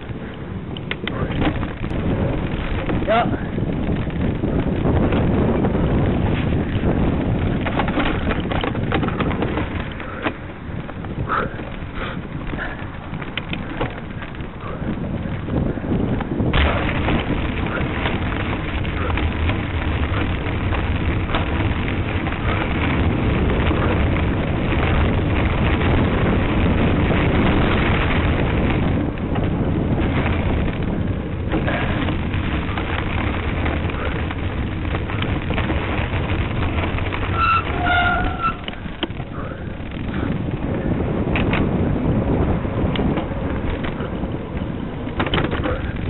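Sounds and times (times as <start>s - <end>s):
wind rushing on microphone: 0.0s - 46.0s.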